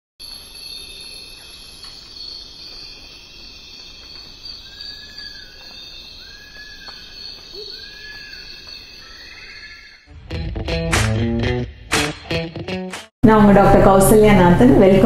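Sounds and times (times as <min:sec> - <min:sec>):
insects chorus: 0:00.2 - 0:10.1
whistled bird calls: 0:00.3 - 0:10.1.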